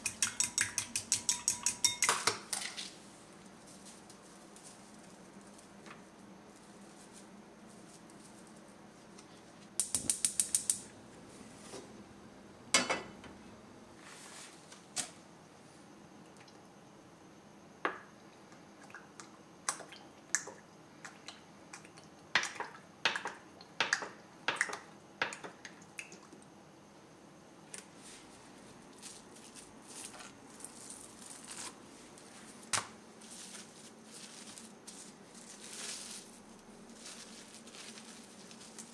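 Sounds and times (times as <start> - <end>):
faint crackling hiss: 25.8 - 38.9.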